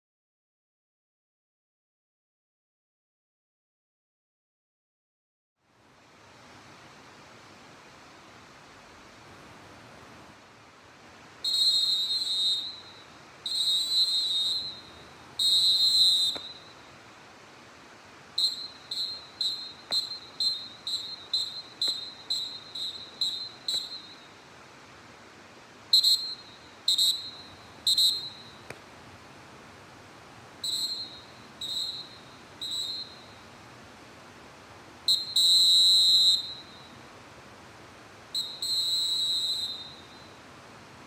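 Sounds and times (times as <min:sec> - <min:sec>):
referee whistle blasts: 0:11.4 - 0:16.9, 0:18.4 - 0:24.4, 0:25.9 - 0:28.8, 0:30.6 - 0:33.5, 0:35.1 - 0:37.0, 0:38.3 - 0:40.4.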